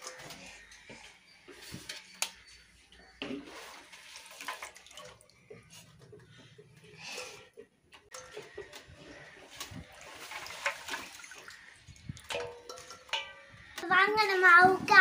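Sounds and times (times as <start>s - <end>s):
water splashing in metal basin: 0.0s - 2.6s, 3.2s - 15.0s
water dripping: 4.1s - 14.6s
clattering in basin: 12.2s - 14.4s.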